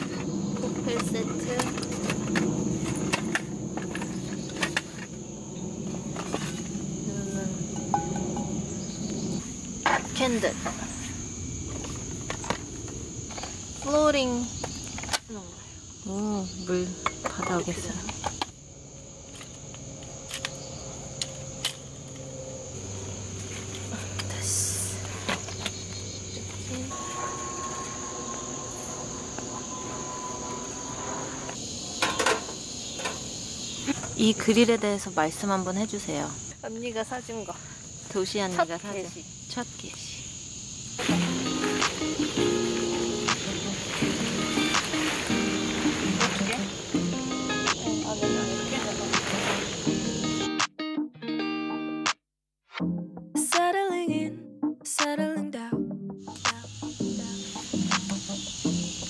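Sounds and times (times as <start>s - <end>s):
insect chorus: 0.0s - 50.6s, 56.3s - 59.0s
camping pans clinking: 7.8s - 8.8s, 17.0s - 18.5s, 25.2s - 34.2s, 41.0s - 49.8s.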